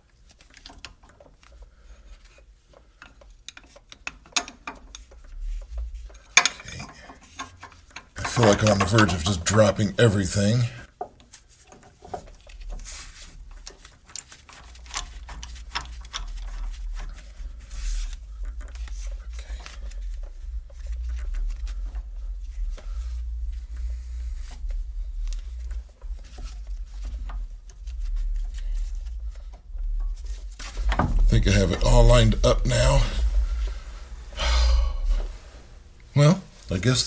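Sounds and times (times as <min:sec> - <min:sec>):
rustling: 0:00.0 - 0:37.0
metal clinks and knocks: 0:02.7 - 0:09.8, 0:11.0 - 0:17.8
low rumble: 0:18.1 - 0:36.0.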